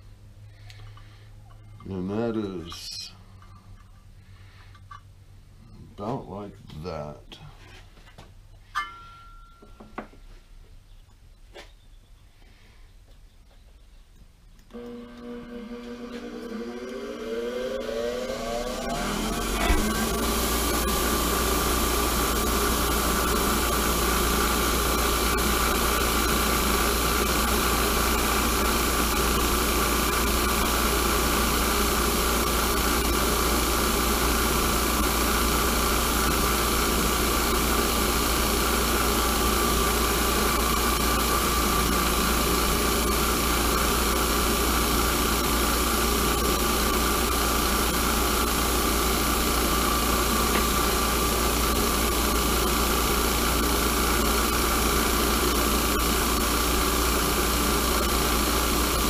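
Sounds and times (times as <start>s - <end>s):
bench grinder grinding steel: 14.7s - 59.0s.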